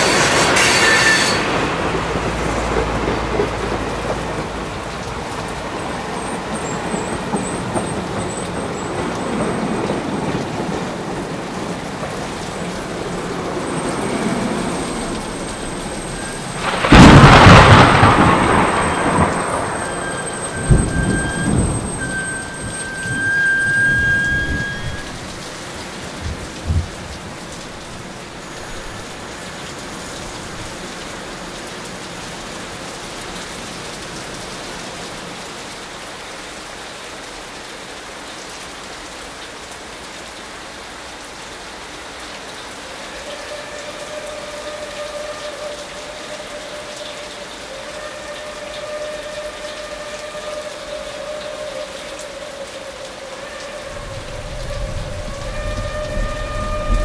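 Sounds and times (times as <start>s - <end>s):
steady rain falling: 0.0s - 57.0s
long steady pitched tone: 18.5s - 25.6s.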